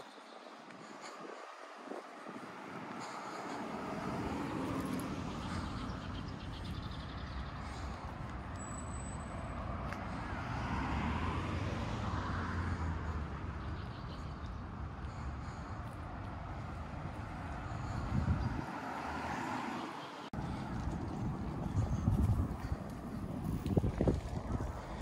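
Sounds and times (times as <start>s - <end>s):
street traffic passing: 0.0s - 25.0s
heavy vehicle passing: 1.8s - 25.0s.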